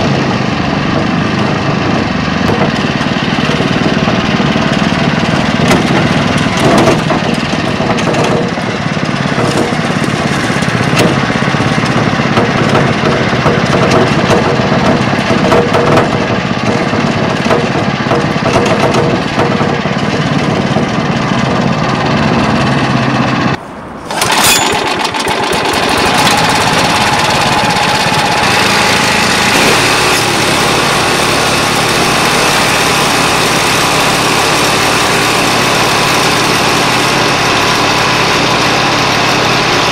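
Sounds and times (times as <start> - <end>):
tractor engine running: 0.0 - 39.9.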